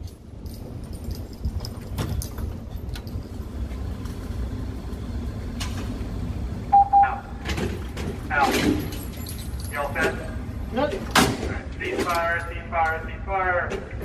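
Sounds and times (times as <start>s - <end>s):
low mechanical rumble: 0.0s - 14.0s
short loud beeps: 6.7s - 7.3s.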